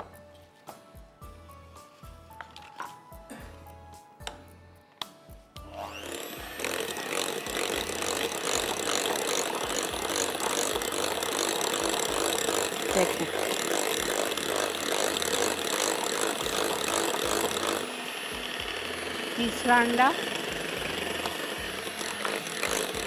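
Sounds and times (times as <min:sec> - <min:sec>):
electric hand mixer running: 0:05.6 - 0:23.0.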